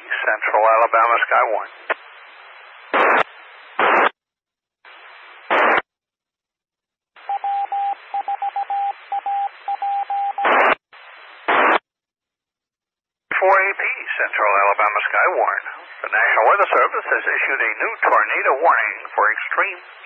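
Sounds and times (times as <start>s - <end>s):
hissing radio carrier: 0.0s - 4.1s, 10.4s - 11.8s, 13.3s - 20.0s
static bursts: 0.0s - 4.2s, 4.8s - 5.9s, 10.4s - 11.9s
morse code beeps: 7.3s - 10.6s.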